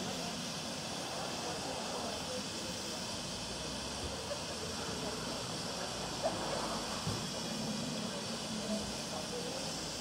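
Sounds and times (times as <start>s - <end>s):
steam engine hissing: 0.0s - 10.0s.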